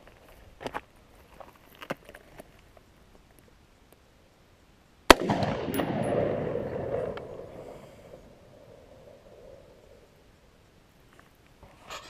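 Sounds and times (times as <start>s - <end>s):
rifle shot: 5.1s - 9.8s
rolling echo off canyon walls: 5.1s - 10.6s.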